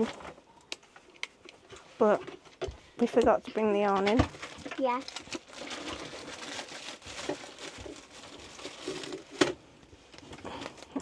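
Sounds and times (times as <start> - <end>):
packaging rustling: 3.6 - 11.0.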